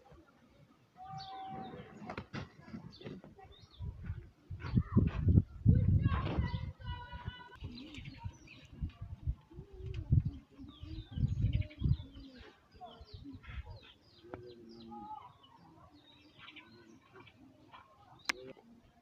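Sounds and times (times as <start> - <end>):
birds chirping: 0.5 - 19.0
dove cooing: 10.3 - 12.6.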